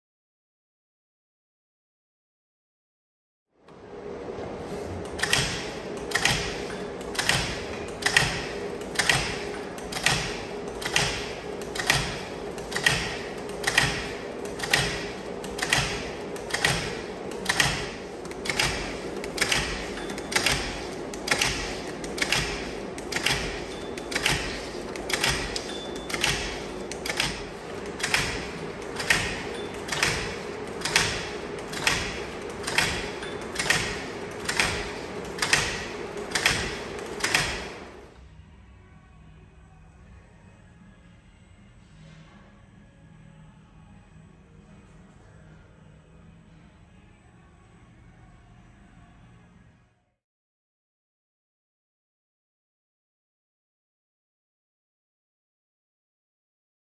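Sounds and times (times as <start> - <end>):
machine humming: 3.6 - 38.8
sharp mechanical clack: 5.1 - 38.0.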